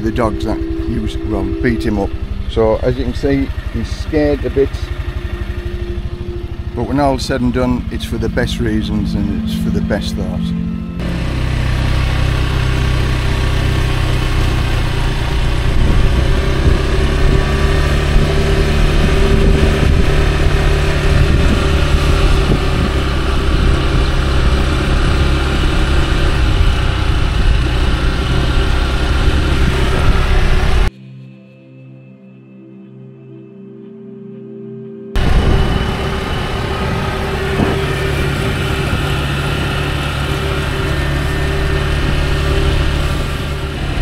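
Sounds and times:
road and wind noise: 0.0 - 30.9, 35.2 - 44.0
scooter engine running: 0.0 - 30.9, 35.2 - 44.0.

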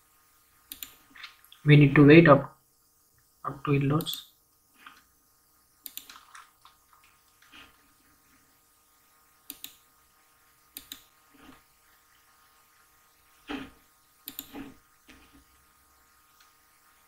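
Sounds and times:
computer mouse clicking: 0.7 - 1.0, 5.8 - 7.5, 9.5 - 9.8, 10.7 - 11.1, 14.2 - 14.7.

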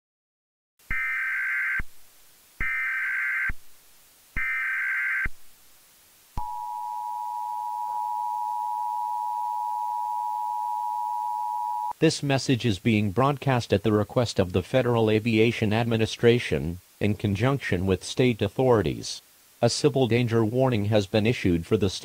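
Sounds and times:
steady two-tone alert signal: 6.4 - 11.9.

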